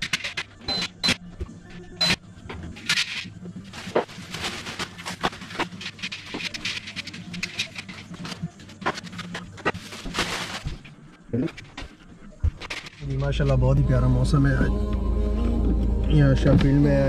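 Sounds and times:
fabric rustling: 9.7 - 11.2.

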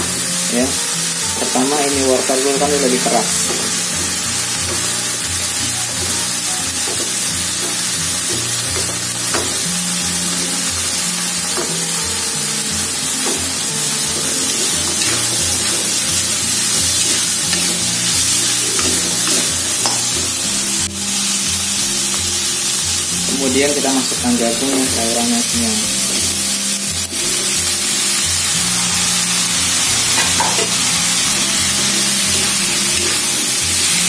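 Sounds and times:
shrimp sizzling in a wok: 0.0 - 34.0
metal spatula scraping: 13.2 - 20.2.

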